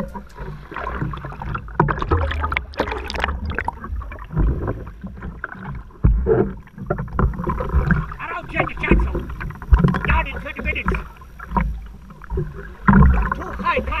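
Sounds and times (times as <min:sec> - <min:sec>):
seawater sloshing and splashing: 0:00.0 - 0:14.0.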